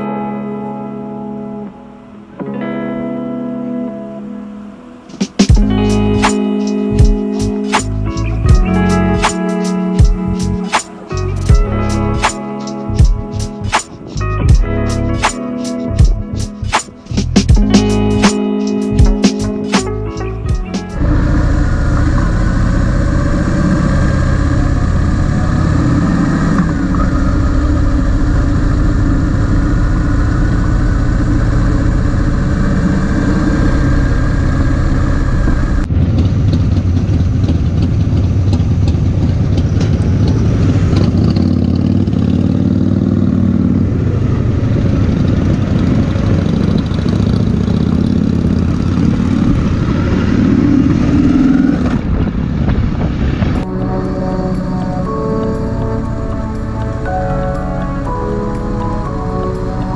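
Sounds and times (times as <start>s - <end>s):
motorcycle engine rumbling: 15.9s - 59.9s.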